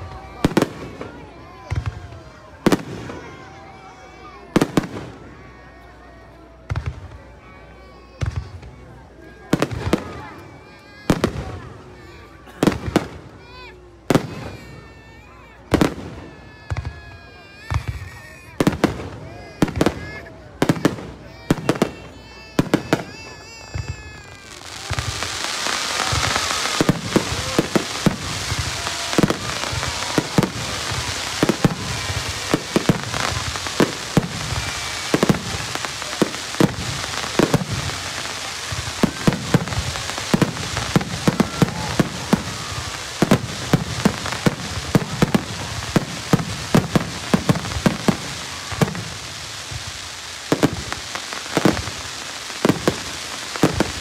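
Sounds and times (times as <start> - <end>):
fireworks crackling hiss: 0.0 - 54.0
fireworks shells bursting: 22.7 - 54.0.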